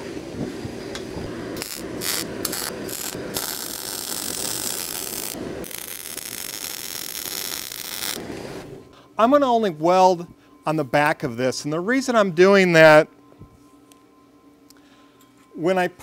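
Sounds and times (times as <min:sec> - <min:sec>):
welding arc crackling: 0:01.3 - 0:08.4.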